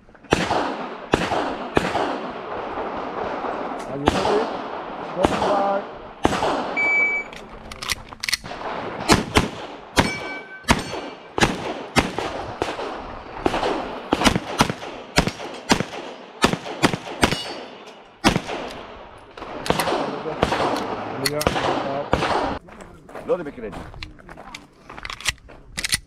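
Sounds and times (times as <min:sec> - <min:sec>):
pistol shots: 0:00.2 - 0:07.3, 0:08.4 - 0:22.6
shot timer beep: 0:06.8 - 0:07.3.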